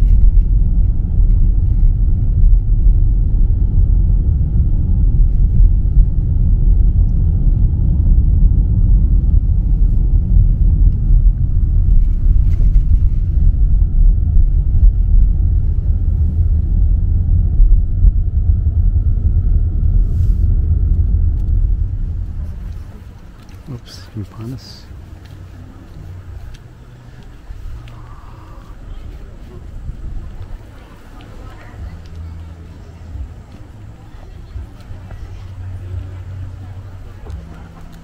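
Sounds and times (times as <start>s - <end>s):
car driving rumble: 0.0s - 38.0s.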